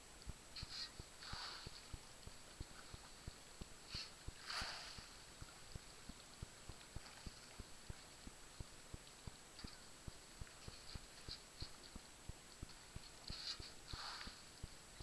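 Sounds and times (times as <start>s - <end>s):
water swish: 4.3s - 6.2s.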